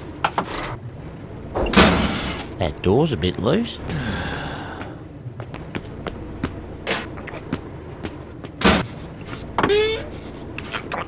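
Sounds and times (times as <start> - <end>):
truck door slamming: 1.6 - 2.4
light footstep taps: 4.8 - 6.6.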